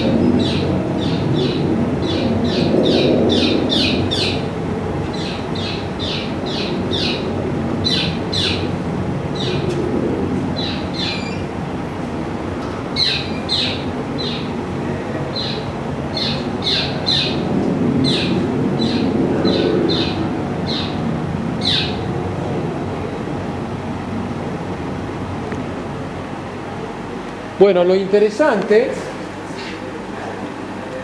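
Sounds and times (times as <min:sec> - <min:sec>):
recorded bird chirps over loudspeakers: 0:00.0 - 0:04.4, 0:10.6 - 0:11.5, 0:13.0 - 0:14.5, 0:15.3 - 0:17.4, 0:21.6 - 0:22.1
steady low background noise: 0:00.0 - 0:31.0.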